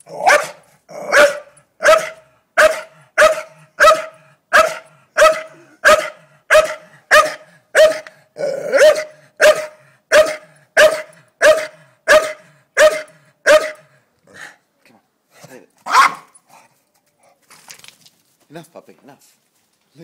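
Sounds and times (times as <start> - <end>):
dog barking: 0.2 - 8.1, 8.7 - 13.9, 15.8 - 16.3.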